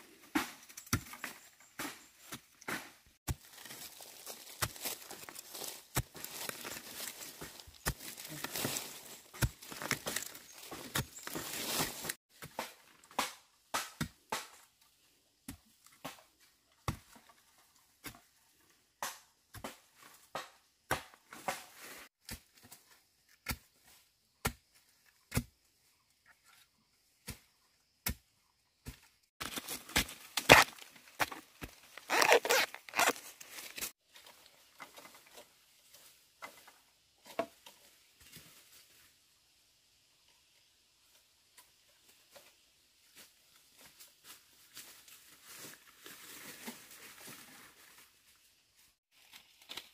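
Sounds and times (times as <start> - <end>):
digging tool striking earth: 0.2 - 14.6, 25.3 - 25.6, 28.0 - 34.0
crunching and tearing: 3.3 - 12.2, 29.4 - 33.9.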